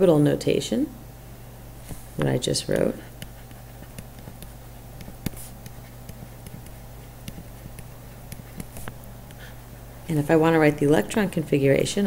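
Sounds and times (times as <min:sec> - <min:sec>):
steady low hum: 0:00.0 - 0:12.0
stylus tapping and clicking: 0:02.2 - 0:09.5.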